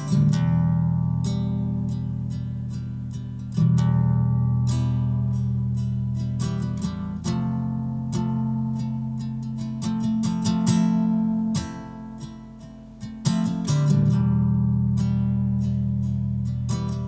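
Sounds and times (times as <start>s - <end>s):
acoustic guitar plucked chords: 0.0s - 17.0s.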